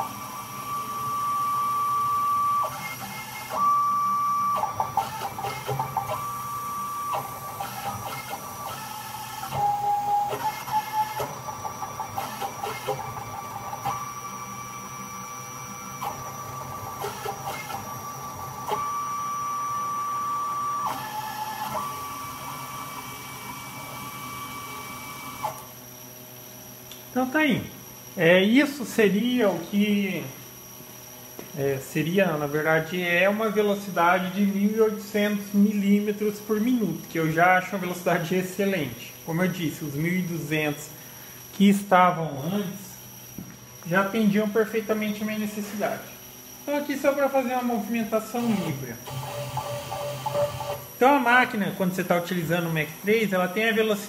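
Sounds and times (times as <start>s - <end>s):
stepper motors whining: 42.2s - 51.7s.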